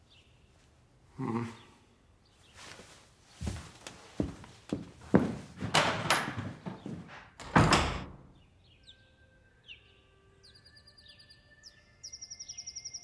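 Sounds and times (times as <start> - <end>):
birds chirping: 0.0 - 13.0
rustling: 2.4 - 7.2
loud knocks: 4.8 - 8.2.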